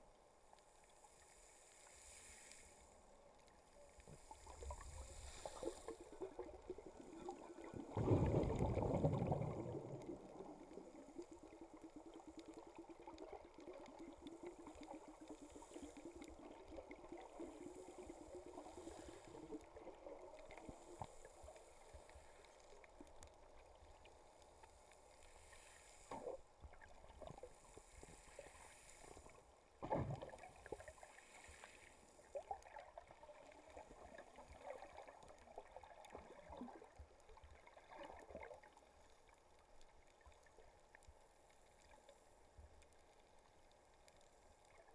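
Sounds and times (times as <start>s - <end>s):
faint steady hum: 0.0s - 44.9s
underwater rush of water: 3.8s - 39.2s.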